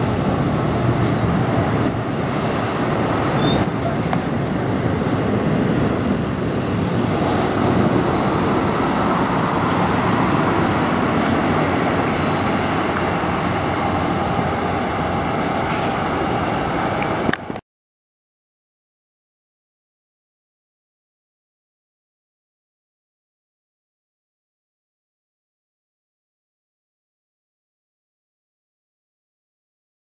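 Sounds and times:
truck diesel engine passing: 0:00.0 - 0:17.6.

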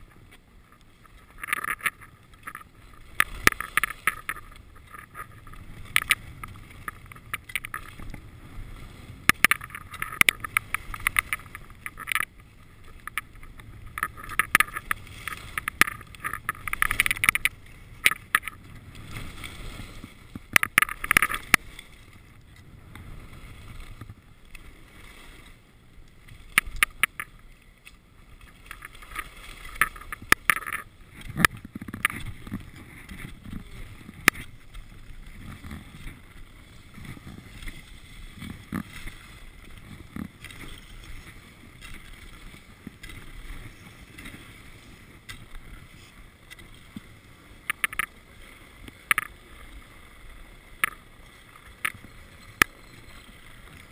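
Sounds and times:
sharp clicks and rattles: 0:00.7 - 0:08.2, 0:09.2 - 0:18.7, 0:20.4 - 0:21.7, 0:26.6 - 0:27.4, 0:28.6 - 0:34.8, 0:47.7 - 0:48.1
skis scraping on packed snow: 0:02.0 - 0:53.9.

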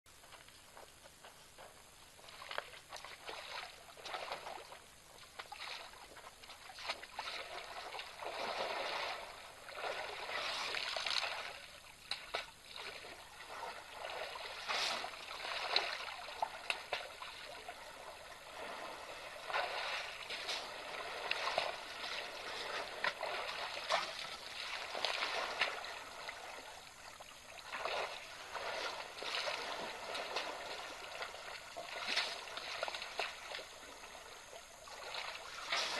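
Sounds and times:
water sloshing and splashing: 0:02.2 - 0:35.9.

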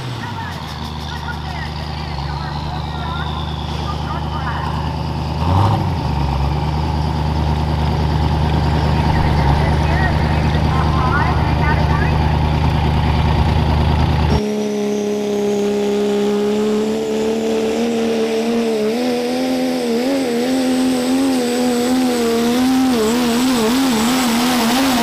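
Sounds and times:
deep engine rumble: 0:00.0 - 0:25.0
diesel truck engine at full throttle: 0:00.0 - 0:25.0
turbo whistle: 0:00.2 - 0:05.6, 0:14.3 - 0:17.2.

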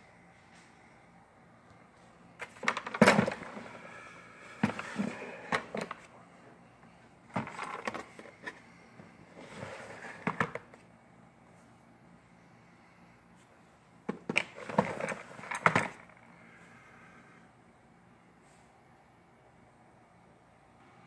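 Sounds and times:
tools rattling in trays: 0:02.4 - 0:03.7
plastic drawers sliding and clacking: 0:02.4 - 0:03.8, 0:04.6 - 0:06.1, 0:07.3 - 0:08.6, 0:09.4 - 0:10.8, 0:14.1 - 0:16.1.

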